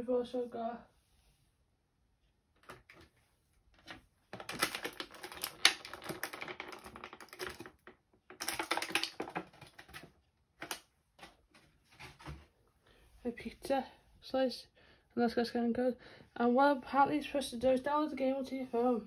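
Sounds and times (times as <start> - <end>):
plastic figures clicking and rustling: 3.8 - 12.4.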